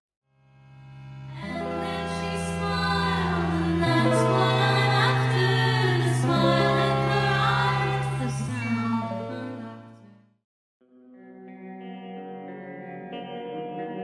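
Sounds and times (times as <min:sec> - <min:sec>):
person singing: 0:01.3 - 0:10.0.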